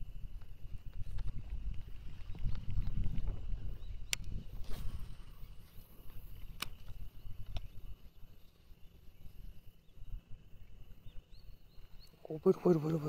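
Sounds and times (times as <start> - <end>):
high insect drone: 0.0 - 13.0
wind rumble on microphone: 0.0 - 13.0
sharp clicks: 6.4 - 7.7.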